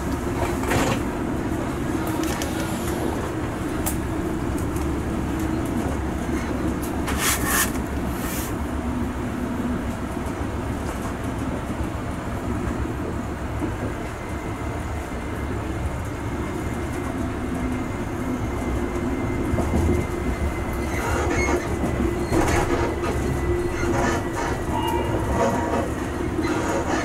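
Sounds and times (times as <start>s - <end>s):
train wheels clicking and clattering: 0.0s - 8.6s, 15.5s - 27.0s
train rumbling on track: 0.0s - 27.0s.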